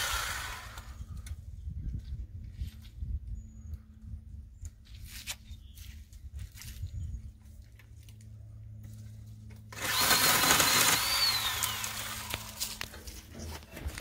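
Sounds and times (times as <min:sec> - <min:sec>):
electric saw cutting branch: 0:00.0 - 0:01.2, 0:09.7 - 0:13.2
low steady hum: 0:00.0 - 0:14.0.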